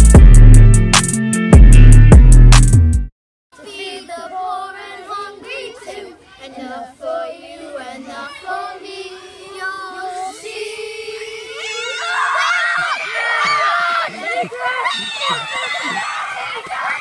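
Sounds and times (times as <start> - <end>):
children singing: 3.6 - 17.0.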